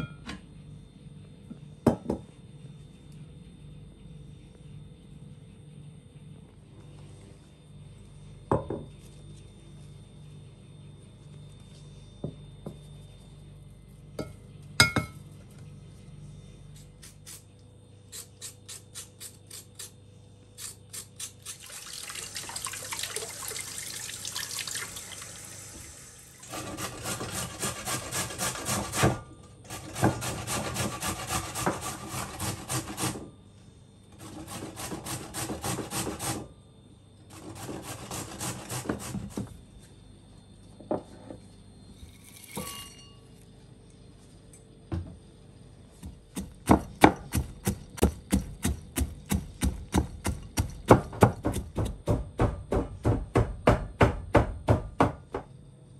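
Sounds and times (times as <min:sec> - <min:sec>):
carrots grated on hand grater: 0:26.5 - 0:33.2, 0:34.2 - 0:36.5, 0:37.3 - 0:39.4.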